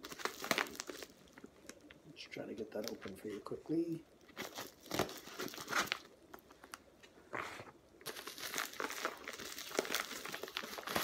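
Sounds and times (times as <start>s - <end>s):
package wrapping crinkling and tearing: 0.0s - 2.0s, 4.2s - 6.8s, 8.0s - 11.0s.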